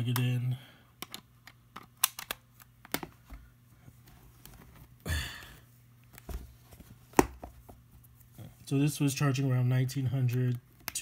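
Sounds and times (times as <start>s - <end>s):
clicks of charging plug handling: 1.0s - 3.1s.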